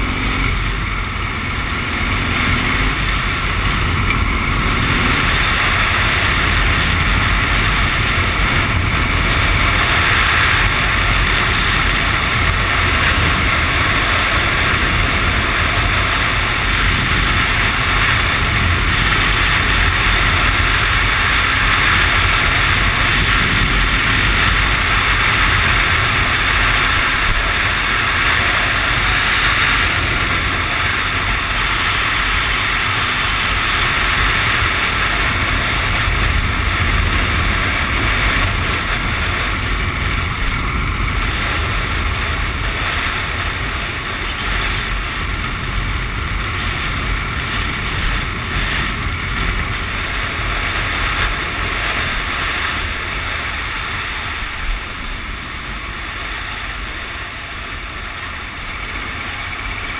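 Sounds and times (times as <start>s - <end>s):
motorcycle engine cruising: 0.0s - 59.9s
wind rush on microphone: 0.0s - 59.9s.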